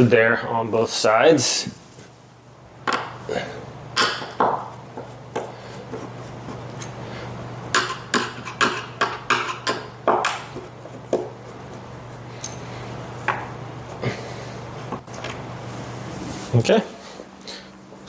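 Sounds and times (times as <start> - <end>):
steady low hum: 0.0 - 18.0
sharp knocks and taps of parts: 2.8 - 3.2, 4.0 - 6.1, 7.7 - 11.4, 13.2 - 13.5.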